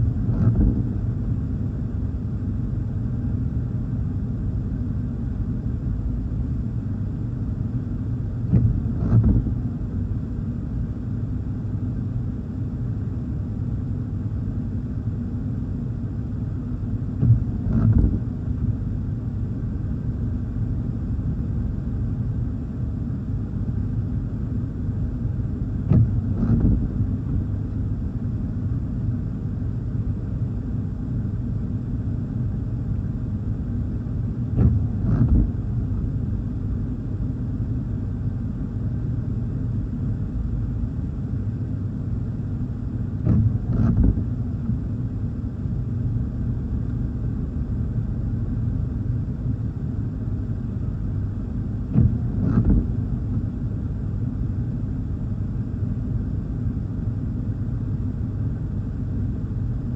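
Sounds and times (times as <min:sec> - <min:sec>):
low car rumble: 0:00.0 - 0:59.9
windshield wipers swishing: 0:25.9 - 0:27.0, 0:34.6 - 0:35.5, 0:43.2 - 0:44.5, 0:51.8 - 0:53.2.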